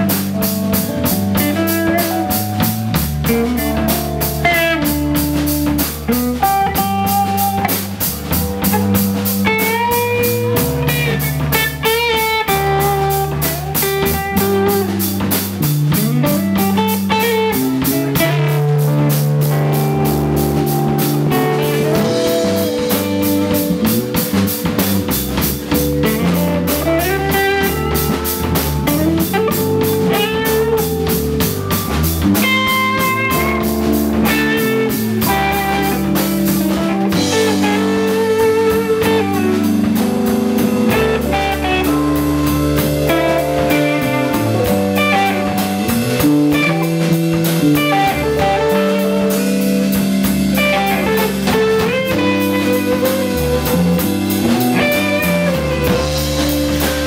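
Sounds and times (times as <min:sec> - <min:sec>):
bass guitar: 0:00.0 - 0:57.0
drum kit: 0:00.0 - 0:57.0
electric guitar: 0:00.0 - 0:57.0
electric keyboard: 0:00.0 - 0:57.0.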